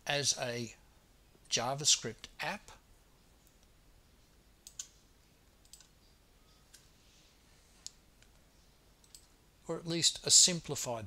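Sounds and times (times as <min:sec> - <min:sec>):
computer mouse clicks: 0:04.6 - 0:05.0, 0:05.6 - 0:06.0, 0:09.0 - 0:09.3.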